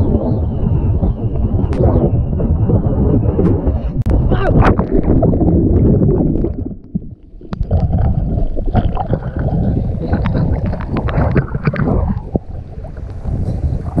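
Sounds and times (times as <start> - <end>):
crackling underwater bubbles: 0.0 - 14.0
low rumble of water: 0.0 - 14.0
surf splashing over camera: 2.8 - 14.0.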